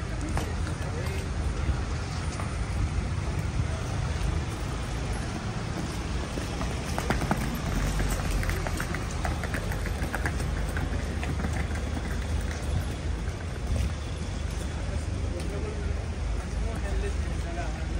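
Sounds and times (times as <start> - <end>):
city traffic rumble: 0.0 - 17.9
suitcase rolling over stone paving: 5.7 - 14.2.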